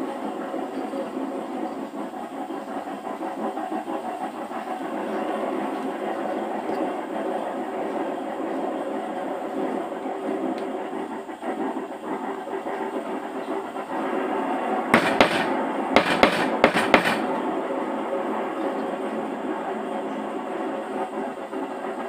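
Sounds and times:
background drone: 0.0s - 22.0s
wooden knocks: 15.0s - 17.4s.

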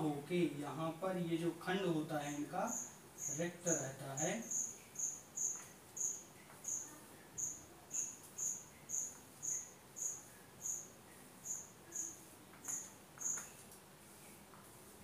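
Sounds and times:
cricket chirping: 2.6s - 13.5s.

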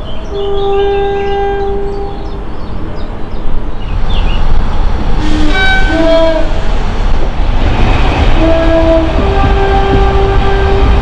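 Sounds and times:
train rumble and wheel noise: 0.0s - 11.0s
train two-tone horn: 0.3s - 2.3s, 5.2s - 6.6s, 8.3s - 11.0s.

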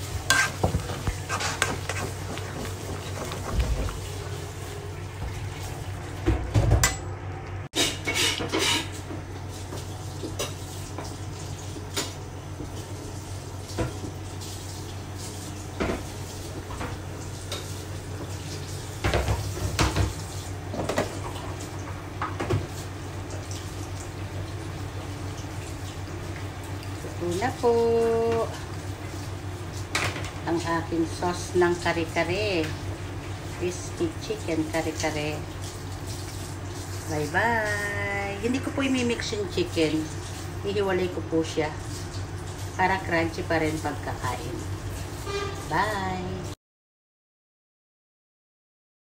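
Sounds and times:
dishes and cutlery clinking: 7.8s - 9.0s.

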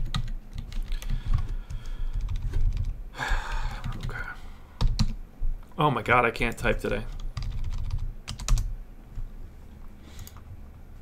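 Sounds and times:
computer keyboard typing: 0.0s - 3.0s, 3.6s - 4.2s, 4.8s - 5.2s, 6.4s - 8.7s.

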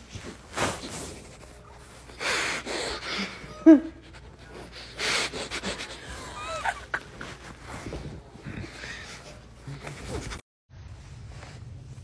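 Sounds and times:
person sniffing: 2.2s - 3.4s, 4.6s - 6.3s.

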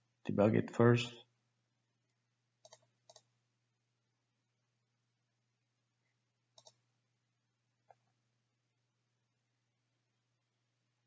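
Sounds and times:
faint low hum: 0.0s - 11.0s
computer mouse clicking: 2.6s - 3.3s, 6.5s - 6.9s.

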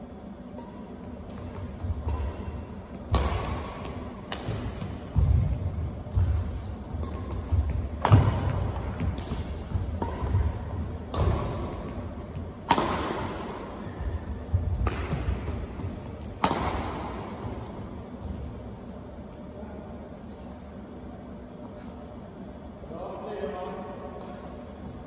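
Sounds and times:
racket hitting shuttlecock: 0.6s - 18.4s, 24.2s - 24.6s.

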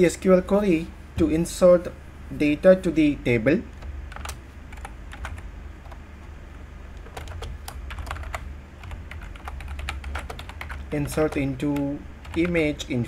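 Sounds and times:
typing on computer keyboard: 4.1s - 6.0s, 7.0s - 12.6s.

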